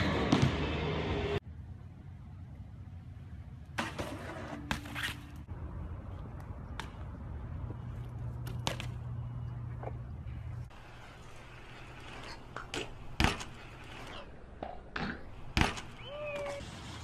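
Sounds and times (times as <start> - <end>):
bike landing with scrape: 3.8 - 5.4, 11.1 - 14.3
low steady hum: 5.5 - 15.6.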